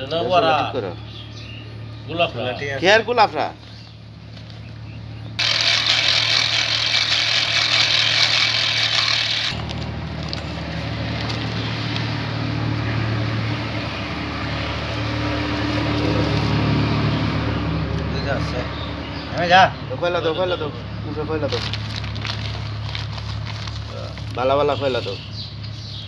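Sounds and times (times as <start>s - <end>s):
loud machinery hiss: 5.4s - 9.6s.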